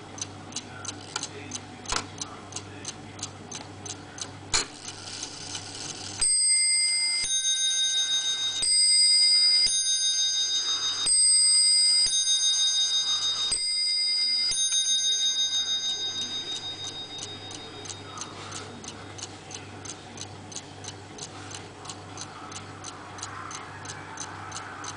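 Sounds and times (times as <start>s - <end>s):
clock bells striking: 6.2s - 18.6s
clock ticking: 13.5s - 24.9s.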